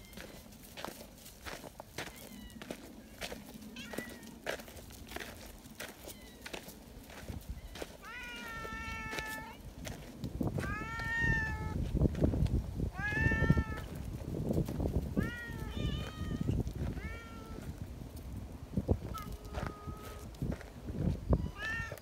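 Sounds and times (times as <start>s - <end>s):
low scuffing and rustling: 0.0s - 22.0s
cats meowing: 2.0s - 4.4s, 5.9s - 6.6s, 7.6s - 9.6s, 10.5s - 11.8s, 12.9s - 14.0s, 15.1s - 17.8s, 19.0s - 20.4s, 21.4s - 22.0s.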